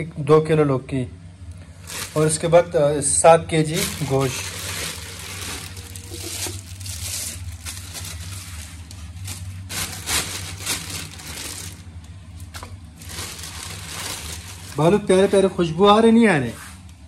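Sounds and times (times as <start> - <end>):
steady low hum: 0.0 - 17.0
plastic bags crinkling: 1.7 - 2.8, 3.5 - 15.8.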